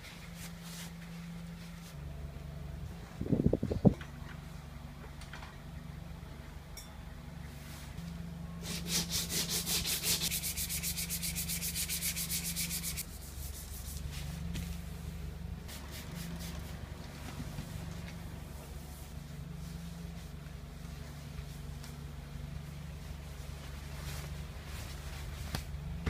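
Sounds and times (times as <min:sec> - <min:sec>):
steady low hum: 0:00.0 - 0:26.0
sandpaper rasping strokes: 0:08.6 - 0:14.3.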